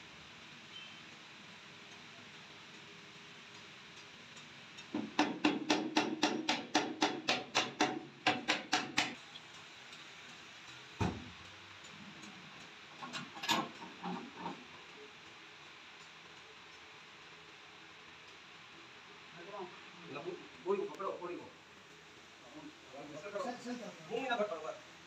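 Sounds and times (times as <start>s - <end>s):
hammer striking metal: 5.0s - 9.2s.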